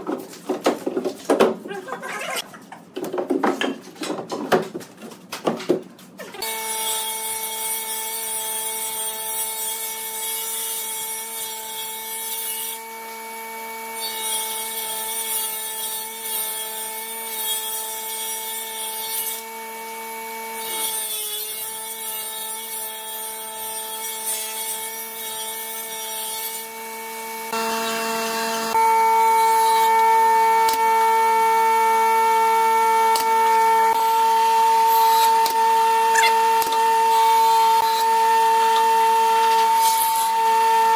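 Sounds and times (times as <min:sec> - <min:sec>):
table saw whine: 0:26.3 - 0:40.9.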